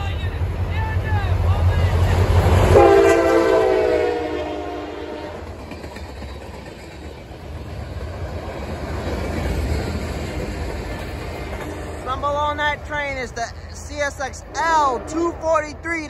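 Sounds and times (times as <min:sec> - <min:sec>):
rumble of train cars rolling: 0:00.0 - 0:15.9
locomotive horn chord: 0:02.6 - 0:05.4.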